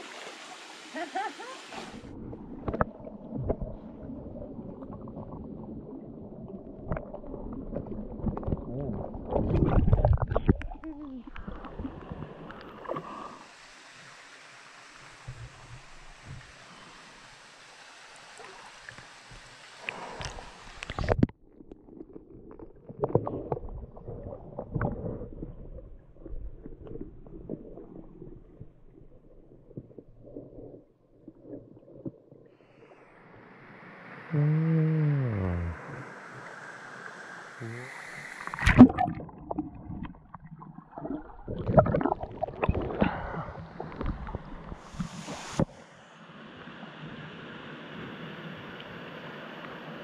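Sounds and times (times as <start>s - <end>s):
flowing water hissing: 0.0s - 2.1s, 11.4s - 21.2s, 32.6s - 40.1s, 42.0s - 48.2s
rush of falling water: 0.0s - 2.1s, 13.2s - 21.1s, 44.8s - 50.0s
water splashing: 0.0s - 32.9s, 35.4s - 45.6s
people wading underwater: 1.7s - 13.7s, 18.4s - 33.0s, 35.4s - 45.8s
underwater gurgles: 1.7s - 14.2s, 18.4s - 33.0s, 34.2s - 45.7s
loud splash: 38.5s - 40.0s
knocks underwater: 38.6s - 43.2s.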